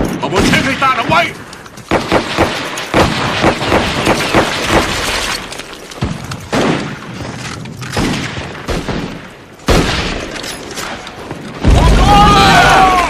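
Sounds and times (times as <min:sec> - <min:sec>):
rifle shots: 0:01.8 - 0:11.9.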